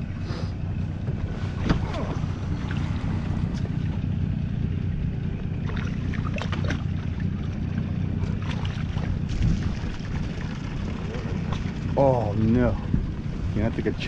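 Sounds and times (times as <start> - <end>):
boat rumbling on water: 0.0 - 14.0.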